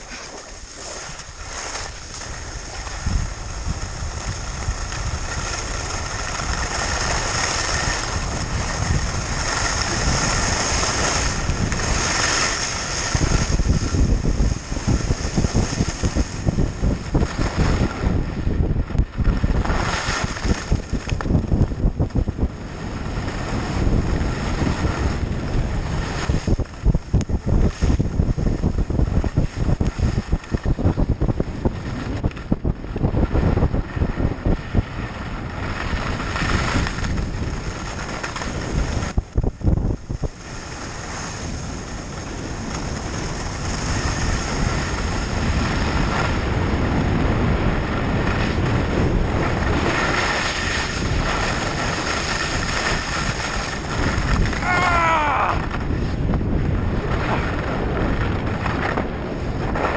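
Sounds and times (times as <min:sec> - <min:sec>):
skis hissing over snow: 0:00.0 - 0:18.0, 0:19.5 - 0:21.0, 0:22.8 - 0:26.6, 0:35.6 - 0:39.2, 0:40.1 - 0:56.2
wind buffeting microphone: 0:00.0 - 0:59.9.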